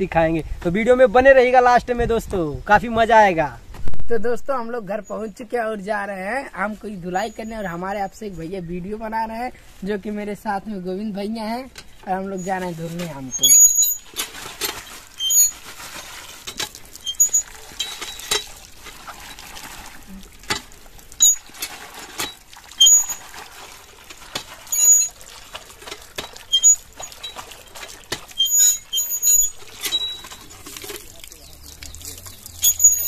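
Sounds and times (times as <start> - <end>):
hand pump squeaking: 7.1 - 7.9, 11.7 - 33.0
water gushing and splashing: 12.7 - 33.0.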